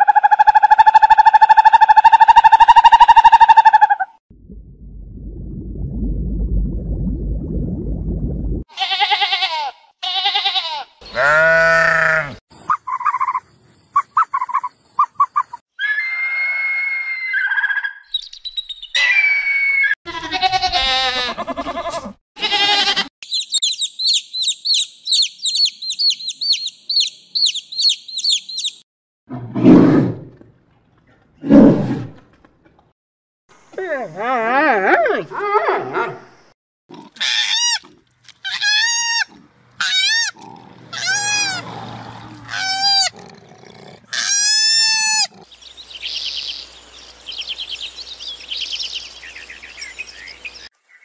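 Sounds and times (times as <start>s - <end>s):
animal calls and chirps: 12.5s - 20.0s, 23.2s - 28.8s
high-pitched chirping trill: 23.2s - 28.8s.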